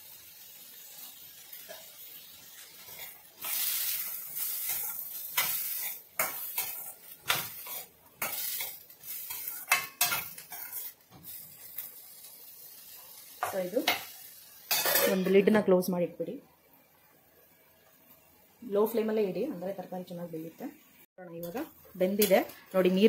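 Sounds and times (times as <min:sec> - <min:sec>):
vegetables sizzling in oil: 0:00.0 - 0:23.0
spoon scraping steel pan: 0:02.9 - 0:11.4.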